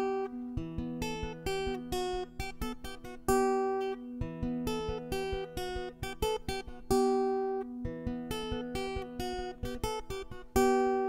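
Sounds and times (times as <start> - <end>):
acoustic guitar picking: 0.0 - 11.0.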